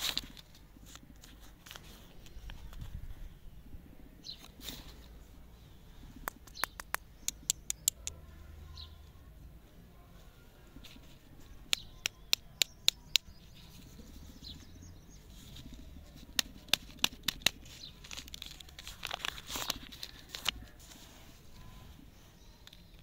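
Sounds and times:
paper wrapper crinkling and tearing: 0:00.0 - 0:02.9, 0:15.4 - 0:21.1
sharp clicks: 0:06.2 - 0:08.2, 0:16.2 - 0:20.6.

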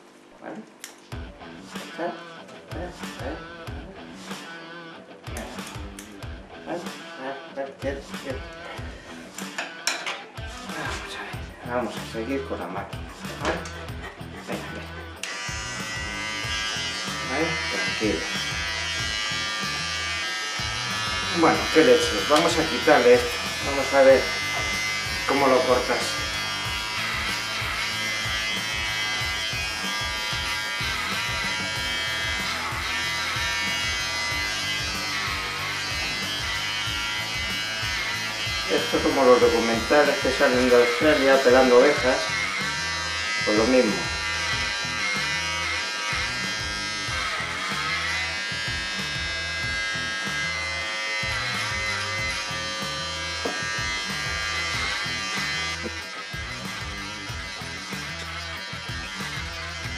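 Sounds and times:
electric clipper buzzing: 0:00.8 - 0:11.1, 0:12.1 - 0:59.9
background music: 0:00.8 - 0:59.9
background music with beat: 0:01.0 - 0:07.2, 0:07.8 - 0:12.2, 0:12.8 - 0:16.7.

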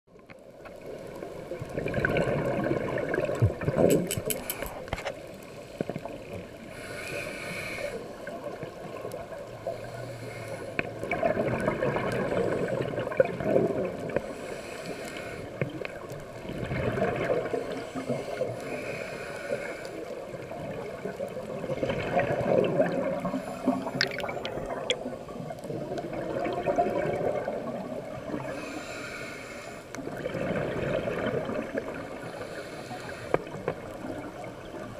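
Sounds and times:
regulator bubbles gurgling: 0:00.3 - 0:04.3, 0:10.6 - 0:14.4, 0:15.5 - 0:18.9, 0:19.7 - 0:28.8, 0:29.9 - 0:34.9
faint regulator hiss: 0:04.1 - 0:11.0, 0:14.0 - 0:16.4, 0:17.5 - 0:21.5, 0:23.1 - 0:26.0, 0:28.1 - 0:30.1, 0:31.9 - 0:34.9.

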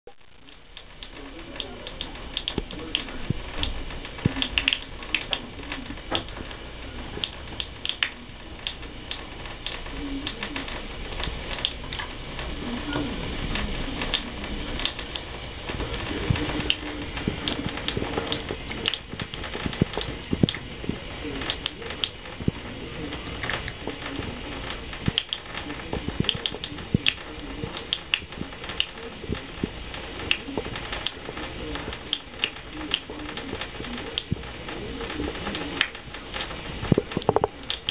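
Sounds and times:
low steady hum: 0:00.1 - 0:37.9.

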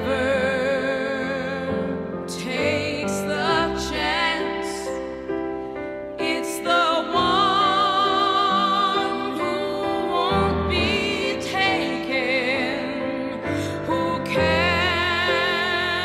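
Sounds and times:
slow song with vibrato melody: 0:00.0 - 0:16.0.

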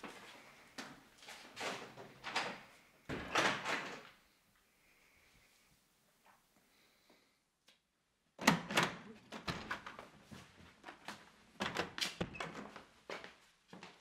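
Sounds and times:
door opening: 0:11.6 - 0:12.8.

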